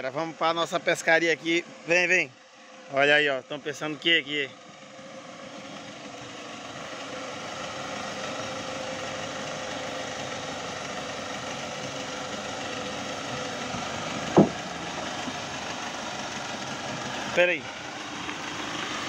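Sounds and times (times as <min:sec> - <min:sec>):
diesel engine running: 0:00.0 - 0:19.0
sharp knock: 0:14.3 - 0:14.6.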